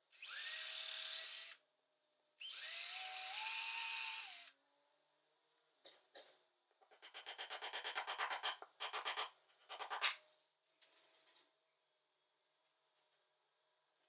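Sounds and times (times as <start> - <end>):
power drill whining: 0.2 - 1.6, 2.4 - 4.5.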